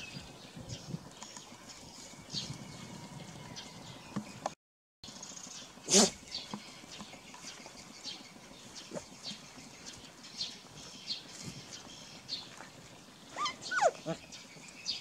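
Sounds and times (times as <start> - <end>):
dogs scuffling in dry grass: 5.2 - 15.0.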